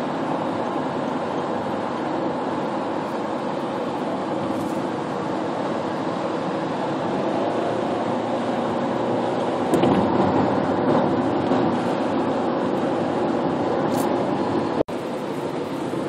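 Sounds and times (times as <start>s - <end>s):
road and tyre noise in car: 0.0s - 16.0s.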